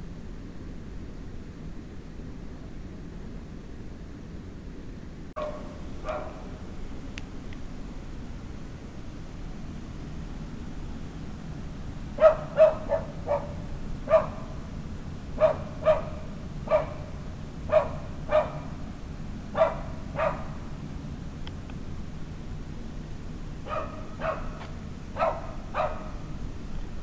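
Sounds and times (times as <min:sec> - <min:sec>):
steady low hum: 0:00.0 - 0:27.0
dog barking: 0:05.4 - 0:06.6, 0:12.2 - 0:14.6, 0:15.4 - 0:17.1, 0:17.7 - 0:18.8, 0:19.5 - 0:20.6, 0:23.6 - 0:24.6, 0:25.2 - 0:26.3.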